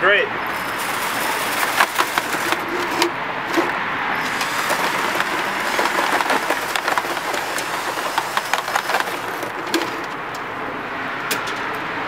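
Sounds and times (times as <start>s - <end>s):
cordless drill whirring: 0.5s - 10.1s
brush rattling and scraping in pipe: 0.5s - 10.5s.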